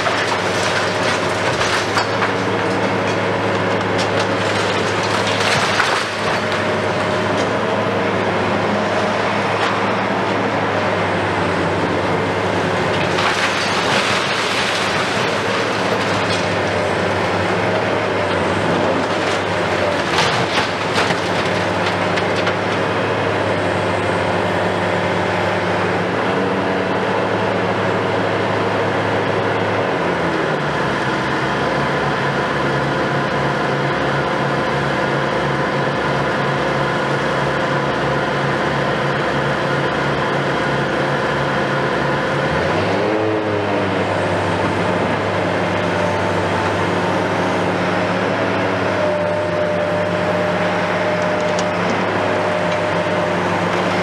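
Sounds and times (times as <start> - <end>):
excavator engine and hydraulics: 0.0 - 54.0.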